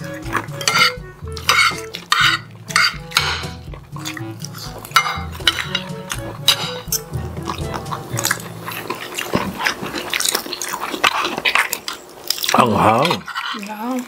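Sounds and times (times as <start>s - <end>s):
background music: 0.0s - 10.2s
cutlery scraping and clinking plates: 0.0s - 11.8s, 13.0s - 13.7s.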